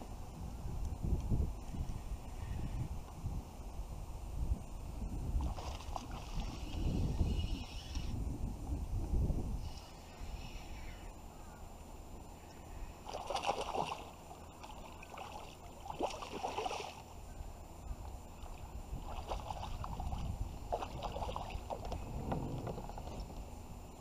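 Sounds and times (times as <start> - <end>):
low rumble: 19.9 - 23.8
kayak gear knocking and rattling: 21.8 - 23.5.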